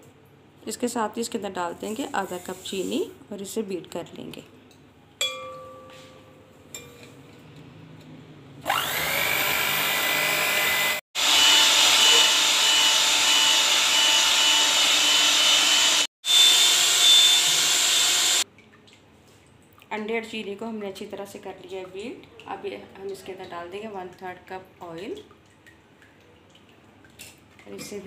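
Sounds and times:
electric hand mixer whining: 8.7s - 18.4s.

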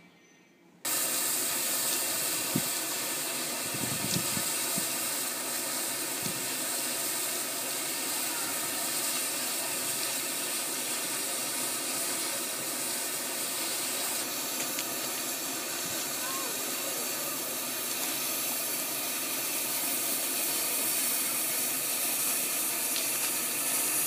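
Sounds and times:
steam hissing from locomotive: 0.8s - 24.0s.

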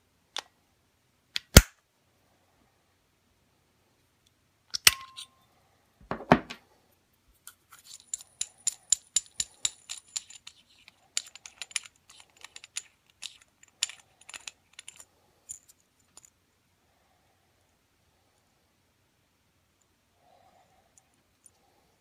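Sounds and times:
metal parts clinking: 7.5s - 16.4s.

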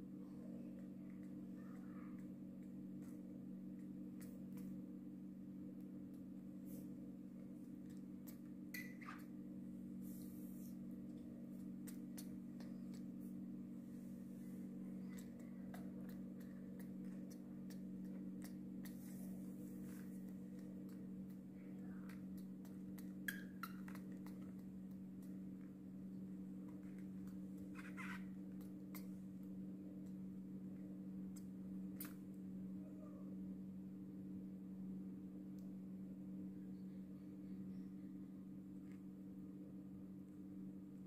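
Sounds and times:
steady low hum: 0.0s - 41.0s
faint clicks and ticks: 11.0s - 13.5s, 14.6s - 30.2s.

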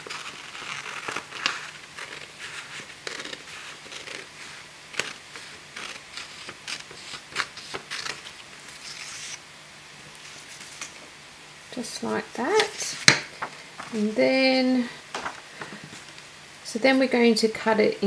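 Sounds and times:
scissors cutting paper: 0.0s - 9.4s.

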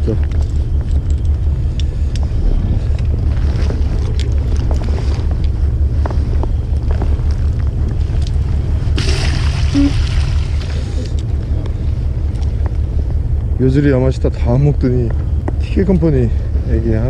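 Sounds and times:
boat engine idling: 0.0s - 17.0s
wind buffeting microphone: 0.0s - 17.0s
water splashing: 8.9s - 11.1s.

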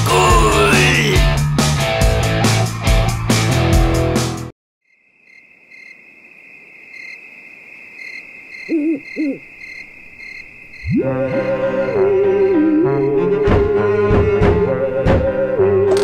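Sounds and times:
music: 0.0s - 4.5s, 10.9s - 16.0s
crickets trilling: 4.9s - 13.3s
owl hooting: 8.0s - 13.2s.

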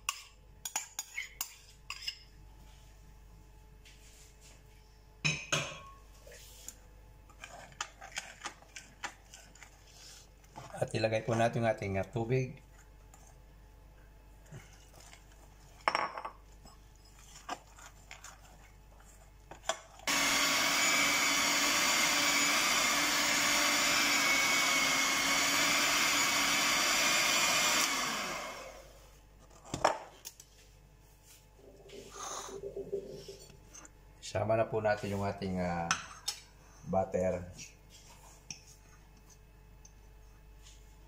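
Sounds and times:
electric hand mixer running: 20.1s - 29.0s.

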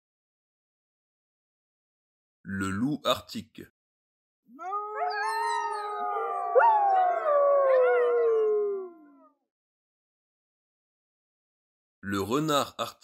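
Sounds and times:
wolves howling in chorus: 4.6s - 9.3s.

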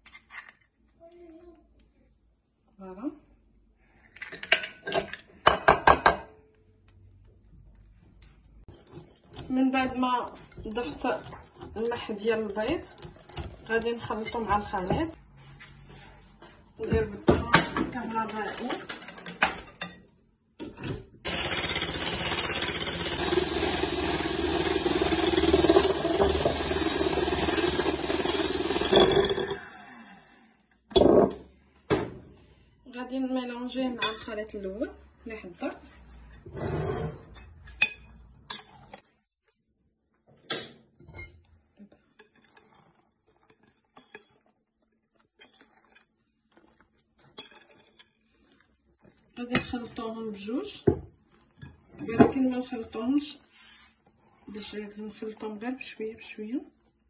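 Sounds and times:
electric hand mixer whipping: 21.3s - 30.5s
glass bowl clinks and scrapes: 24.9s - 29.6s, 36.9s - 39.0s, 42.1s - 44.5s, 45.3s - 46.2s, 47.2s - 48.4s.

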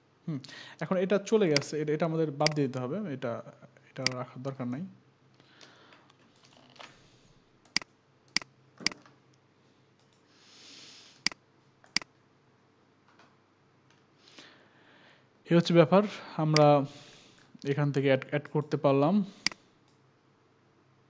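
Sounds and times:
keyboard and mouse clicks: 2.4s - 2.6s, 11.8s - 12.1s.

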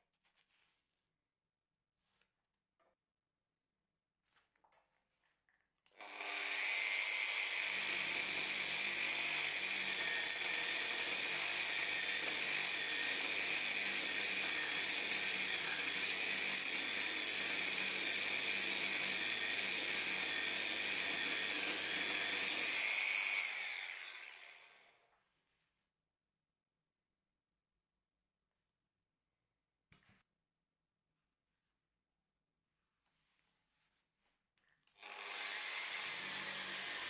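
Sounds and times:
angle grinder whining: 6.0s - 24.9s, 35.0s - 37.0s.

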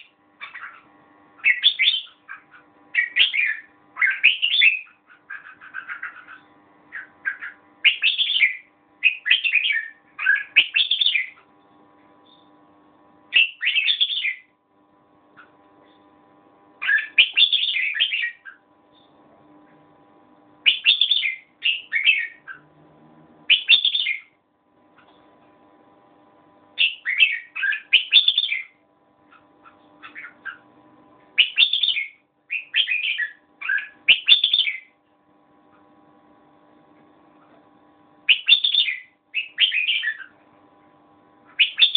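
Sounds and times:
bird singing chattering phrases: 0.0s - 11.5s, 13.3s - 14.5s, 16.8s - 19.2s, 20.6s - 22.7s, 23.5s - 24.4s, 26.8s - 30.7s, 31.4s - 35.0s, 38.3s - 40.4s, 41.4s - 41.9s.

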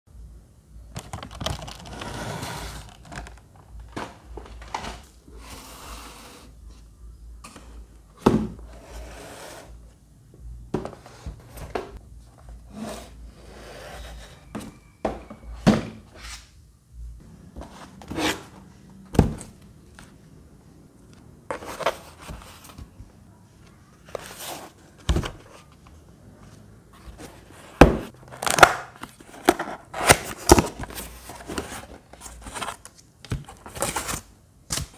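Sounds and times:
boxes knocking on table: 8.2s - 8.7s, 14.5s - 16.0s
cardboard rustling and scraping: 10.7s - 16.5s, 17.5s - 19.6s, 21.5s - 23.1s, 23.9s - 34.3s.

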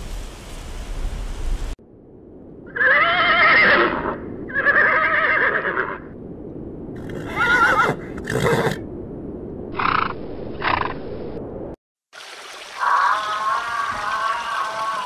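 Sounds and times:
horses whinnying: 2.7s - 6.1s, 7.0s - 8.8s.

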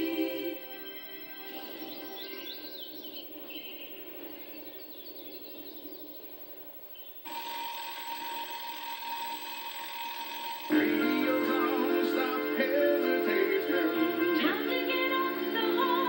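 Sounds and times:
birds chirping faintly: 0.0s - 16.0s
alarm clock bell ringing: 7.3s - 14.2s.

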